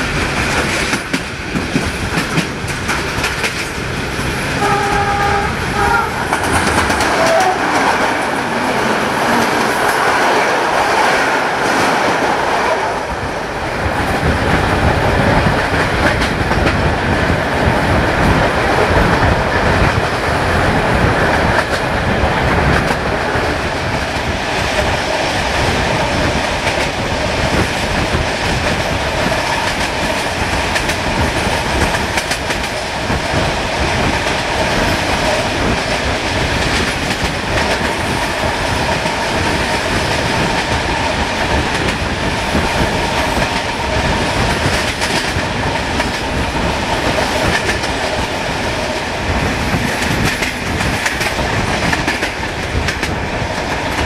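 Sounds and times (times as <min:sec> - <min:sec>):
train wheels clattering over rails: 0:00.0 - 0:54.0.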